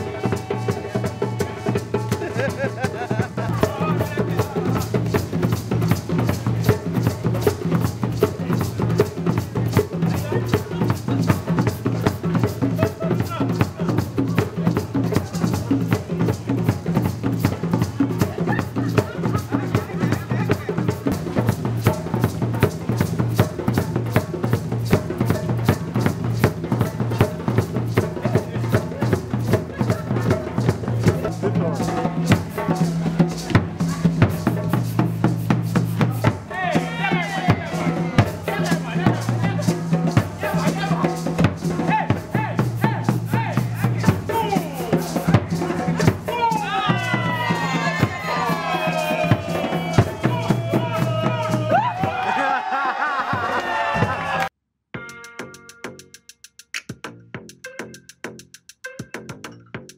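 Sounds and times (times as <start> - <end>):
hand drums playing: 0.0 - 52.6, 53.2 - 59.9
drum-driven music with bass: 55.0 - 59.9.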